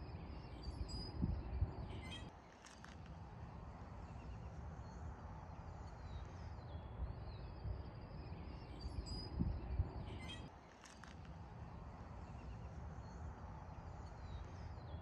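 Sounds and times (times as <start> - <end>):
faint bird chirps: 4.0 - 11.2.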